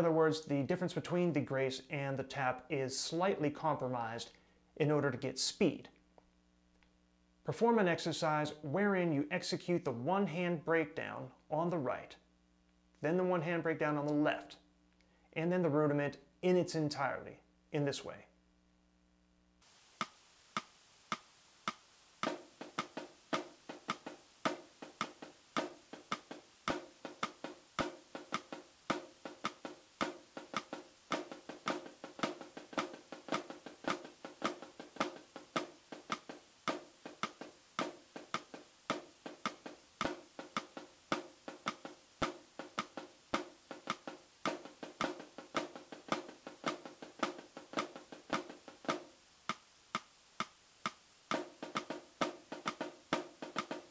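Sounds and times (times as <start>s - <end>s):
drumsticks playing on a drum: 20.0s - 53.9s.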